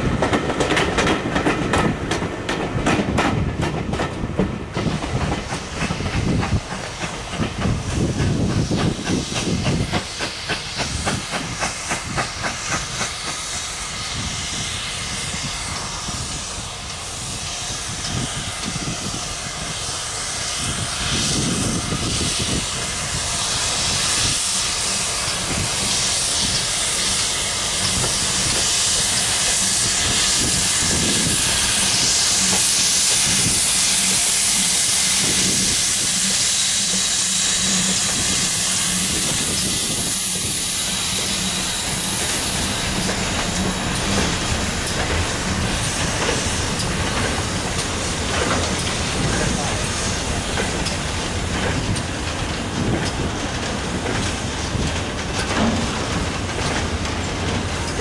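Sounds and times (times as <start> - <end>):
steam locomotive hissing: 0.0 - 58.0
wagons rolling on rails: 43.0 - 58.0.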